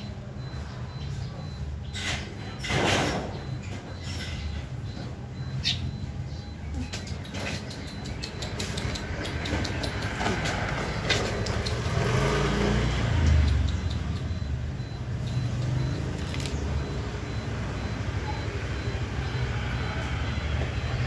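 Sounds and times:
vehicle engine rumble passing: 0:00.0 - 0:21.0
sharp clicks: 0:06.7 - 0:12.3, 0:12.9 - 0:17.0.

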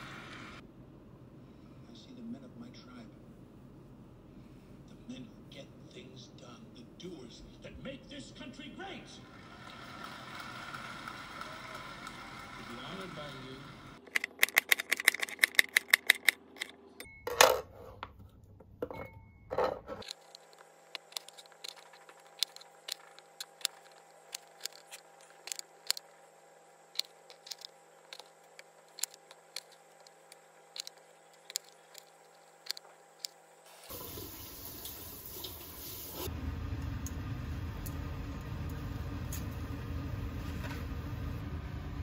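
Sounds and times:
water boiling in a pan: 0:33.7 - 0:42.0.

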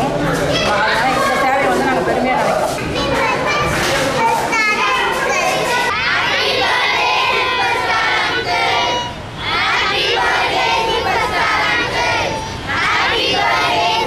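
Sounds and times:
crowd shouting and cheering: 0:03.0 - 0:14.0.

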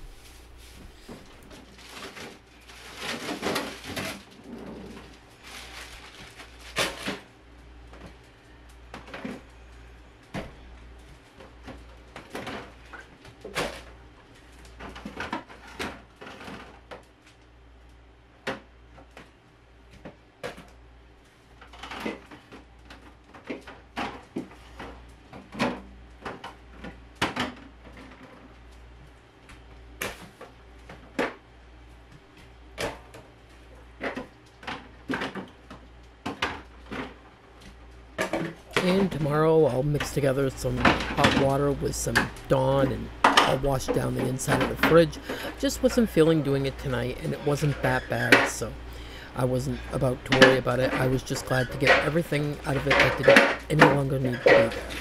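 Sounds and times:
refrigerator low hum: 0:00.0 - 0:55.0
bottles and jars clinking: 0:49.7 - 0:55.0.

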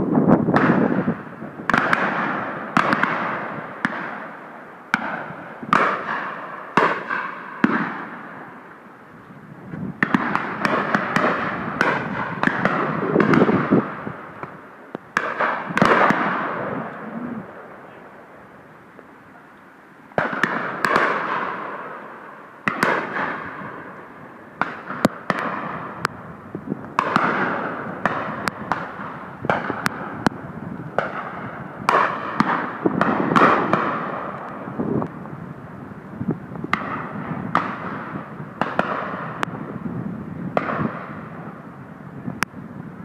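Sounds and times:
shotgun shots echoing: 0:00.5 - 0:08.5, 0:10.0 - 0:18.2, 0:20.2 - 0:26.1, 0:27.0 - 0:30.4, 0:31.0 - 0:34.6, 0:36.7 - 0:39.5, 0:40.6 - 0:41.4.

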